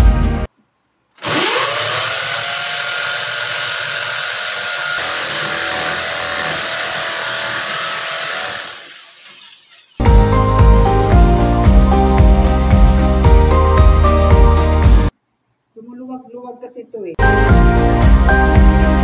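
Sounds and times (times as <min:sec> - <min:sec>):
electric drill boring into cement: 0:01.2 - 0:10.0.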